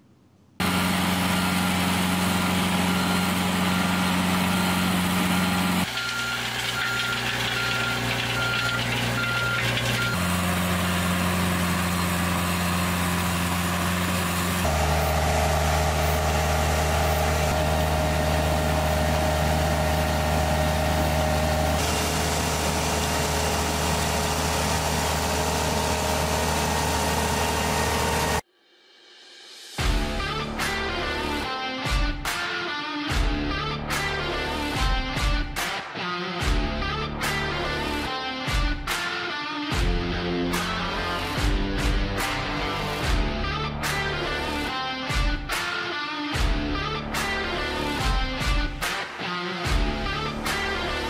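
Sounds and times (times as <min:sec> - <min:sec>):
track loader engines running: 0:00.6 - 0:28.4
reversing alarm beeping: 0:02.4 - 0:10.4.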